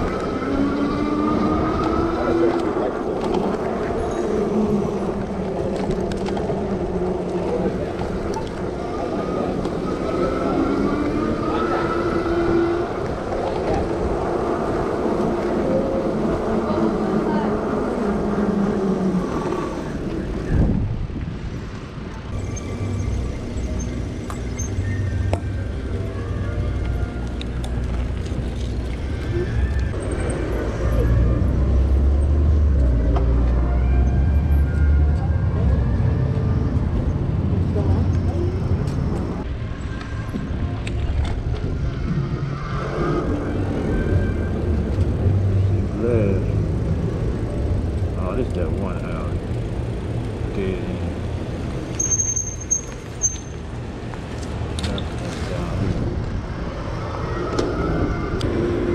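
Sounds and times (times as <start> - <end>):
wind buffeting microphone: 0.0 - 22.4
low road rumble: 0.0 - 58.9.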